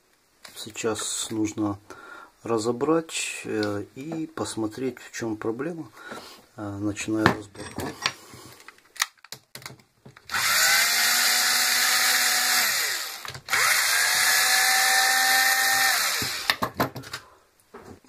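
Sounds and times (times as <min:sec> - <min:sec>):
cordless drill unscrewing screws: 0:15.8 - 0:16.6.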